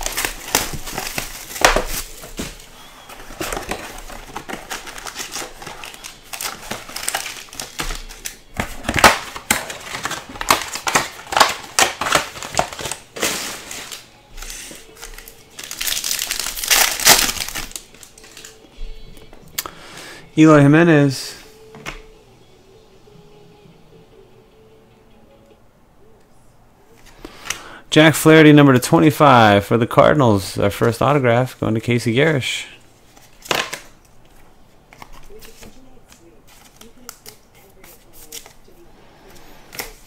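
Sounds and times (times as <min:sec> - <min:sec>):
foil wrappers crinkling: 0:00.0 - 0:18.7, 0:33.0 - 0:40.0.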